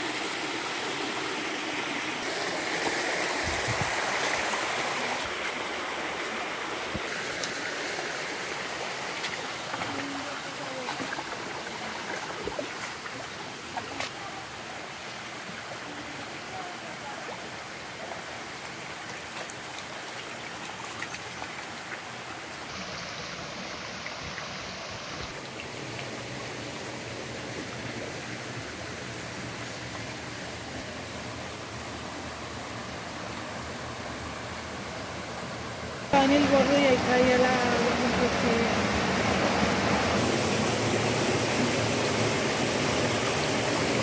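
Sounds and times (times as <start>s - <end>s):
stream running over rocks: 0.0s - 44.0s
boots splashing in water: 9.2s - 13.2s.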